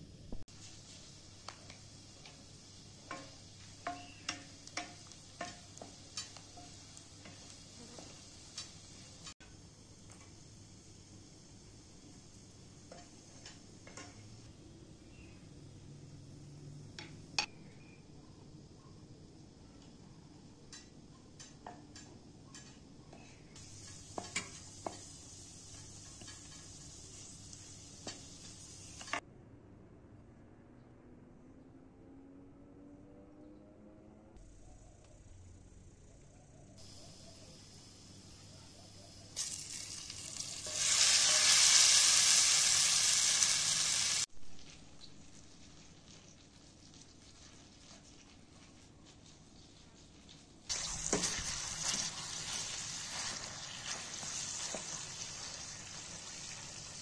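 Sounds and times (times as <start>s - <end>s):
onions sizzling: 0.4s - 17.2s, 20.2s - 29.2s, 36.8s - 57.0s
spoon knocking against pan: 3.1s - 6.8s.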